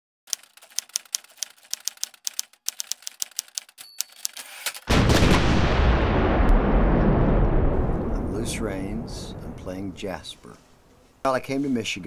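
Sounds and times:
high typewriter ding: 0.3s - 4.9s
typewriter keystrokes: 0.3s - 4.9s
loud rushing rumble: 4.9s - 10.4s.

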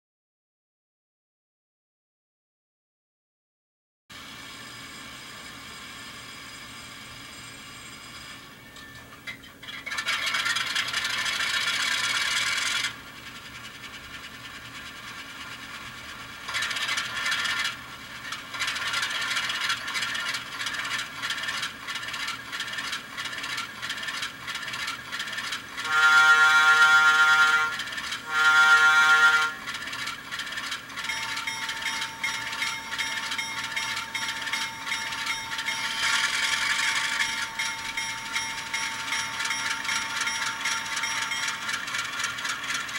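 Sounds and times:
locomotive horn blasts: 25.8s - 29.7s
steady tone: 31.0s - 42.2s.

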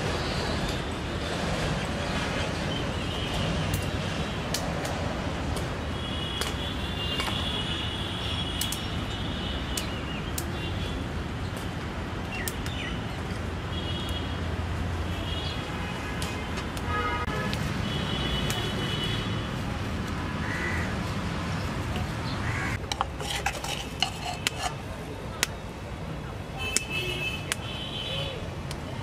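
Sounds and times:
traffic hum: 0.0s - 29.0s.

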